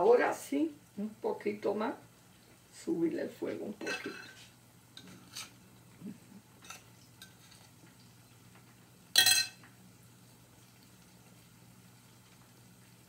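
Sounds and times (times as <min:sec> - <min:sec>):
faint steady hum: 0:00.0 - 0:13.0
spoon clinking glass bowl: 0:09.2 - 0:09.6.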